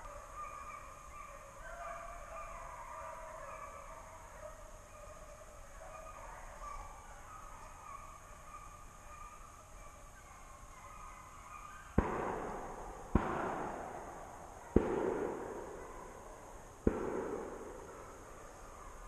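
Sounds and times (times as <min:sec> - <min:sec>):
gunshots echoing: 0:12.0 - 0:16.0, 0:16.8 - 0:18.2.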